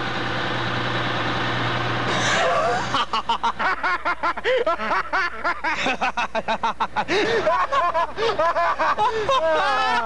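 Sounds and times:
man laughing loudly: 2.4s - 10.0s.

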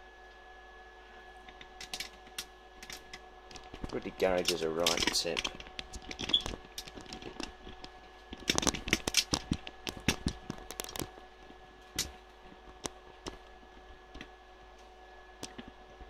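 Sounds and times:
faint steady whine: 0.0s - 16.0s
small objects clicking and clattering: 1.8s - 11.1s.

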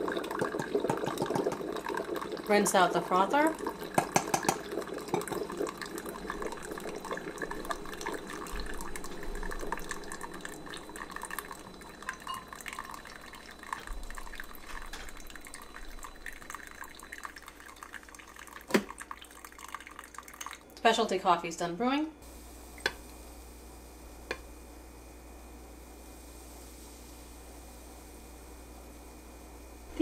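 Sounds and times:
coffee trickling into a glass cup: 0.0s - 20.8s.

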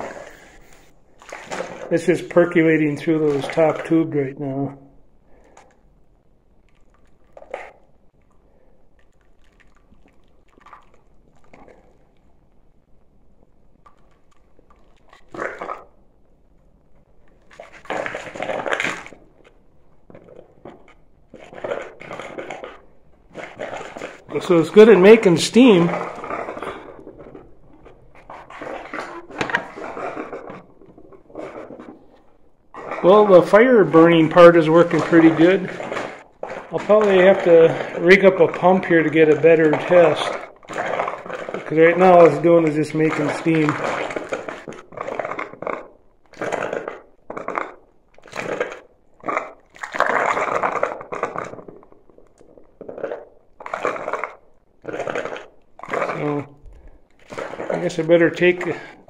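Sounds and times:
water hissing and gurgling: 0.0s - 4.6s, 20.4s - 45.2s, 55.9s - 59.0s.

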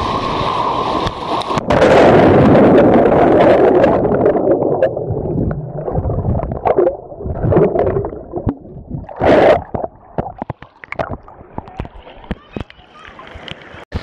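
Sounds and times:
rush of bubbles: 0.0s - 12.4s
muffled underwater swirling bubbles: 1.2s - 12.7s
underwater knocks: 3.8s - 12.7s.

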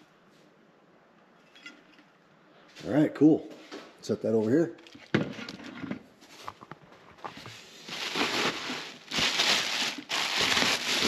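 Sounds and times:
packaging rustling and crinkling: 7.2s - 11.0s.

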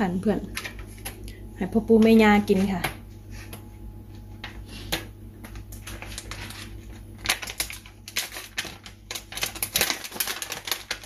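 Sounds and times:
steady low hum: 0.0s - 11.0s
hands handling food packaging: 4.9s - 11.0s.

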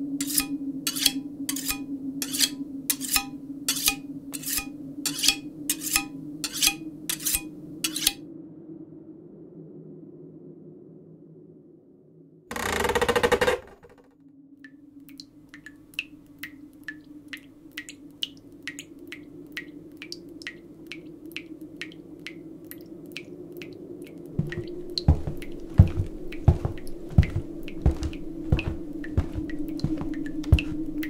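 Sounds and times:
water dripping: 0.2s - 8.1s, 14.6s - 31.0s
low steady hum: 20.3s - 31.0s
heavy low thumps: 24.4s - 31.0s.

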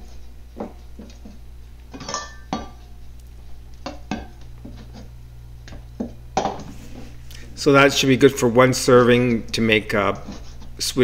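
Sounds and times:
metal bowl clanking: 1.9s - 2.9s.

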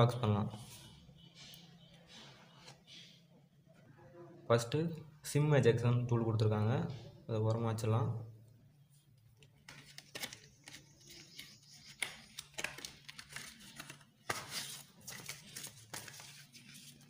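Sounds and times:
paper packaging rustling: 9.5s - 17.0s.

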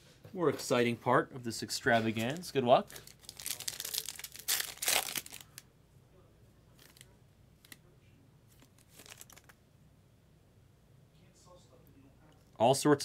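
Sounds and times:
foil wrapper crinkling: 2.9s - 5.6s, 8.6s - 9.6s.

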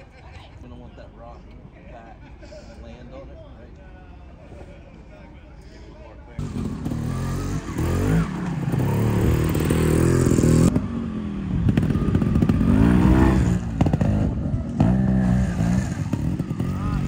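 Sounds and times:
truck engine revving: 6.4s - 17.0s.

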